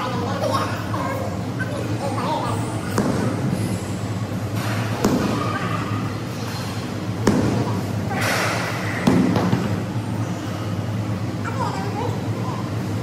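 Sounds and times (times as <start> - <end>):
medicine ball thudding: 2.9 - 3.5, 4.9 - 5.5, 7.2 - 7.8, 9.0 - 9.8.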